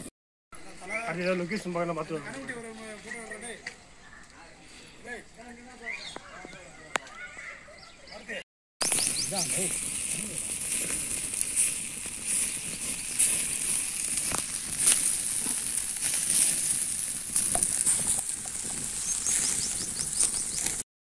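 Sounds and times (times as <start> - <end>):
steady high hiss: 8.8 - 20.4
meat sizzling: 8.8 - 20.8
wood fire crackling and popping: 8.8 - 20.8.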